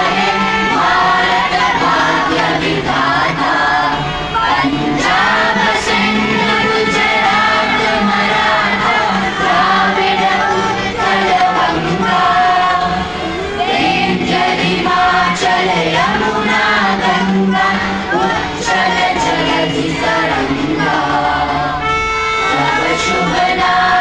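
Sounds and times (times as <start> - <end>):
children singing: 0.0 - 24.0.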